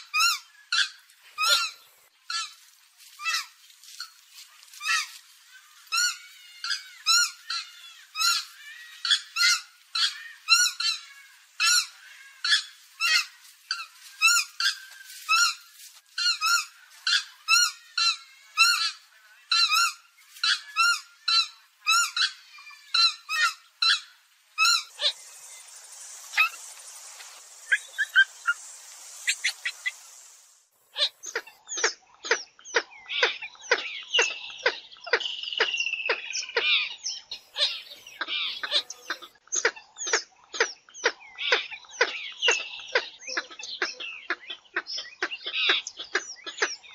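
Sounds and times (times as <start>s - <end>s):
background hiss: 0.0s - 31.7s
bird honking calls: 16.2s - 30.4s.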